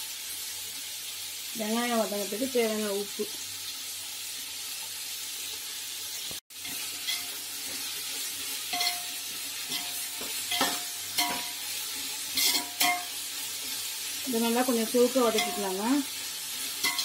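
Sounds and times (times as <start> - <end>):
onions sizzling in hot oil: 0.0 - 17.0
ladle scraping and clinking on pot: 8.7 - 9.1, 9.7 - 11.6, 12.3 - 13.1, 16.8 - 17.0.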